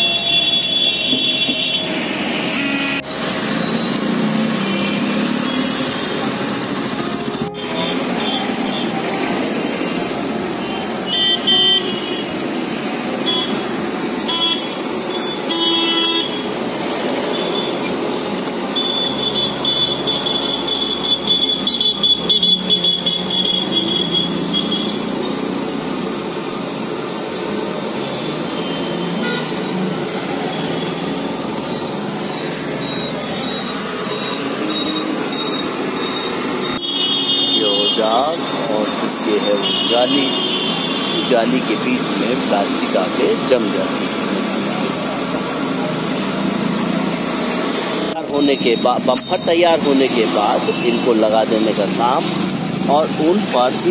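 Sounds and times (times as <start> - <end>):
vehicle horns tooting: 0.0 - 3.2, 7.1 - 9.4, 10.5 - 12.5, 13.1 - 16.7, 18.7 - 25.3, 28.0 - 29.8, 30.5 - 42.4
street traffic din: 0.0 - 53.9.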